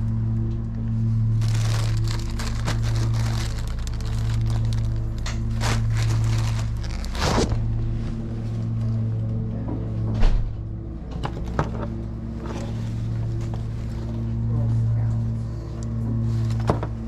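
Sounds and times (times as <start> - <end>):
background music of low tones: 0.0 - 17.0
plastic bag crinkling: 1.3 - 7.7.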